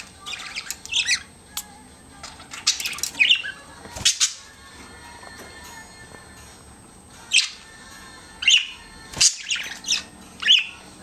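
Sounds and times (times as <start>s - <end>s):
budgerigars chirping: 0.2s - 1.3s, 8.4s - 10.8s.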